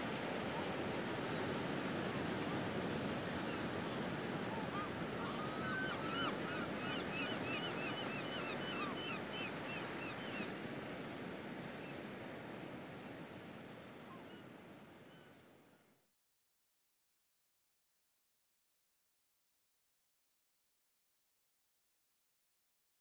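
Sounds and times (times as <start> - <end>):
surf-like rushing noise: 0.0 - 11.5.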